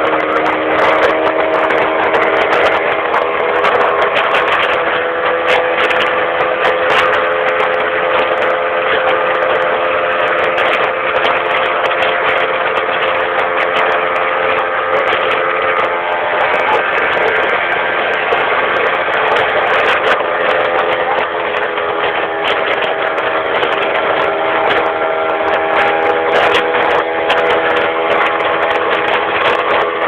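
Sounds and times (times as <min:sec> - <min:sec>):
boat motor droning: 0:00.0 - 0:30.0.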